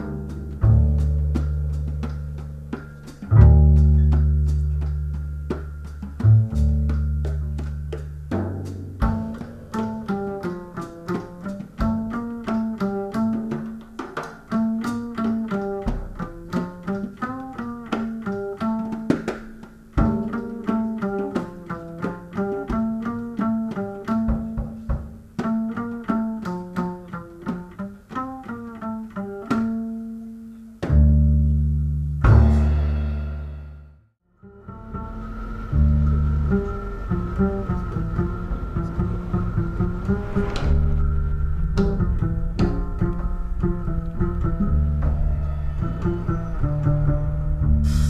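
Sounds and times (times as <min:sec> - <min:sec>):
low bass line: 0:00.0 - 0:13.8, 0:30.7 - 0:48.0
plucked string notes: 0:00.0 - 0:48.0.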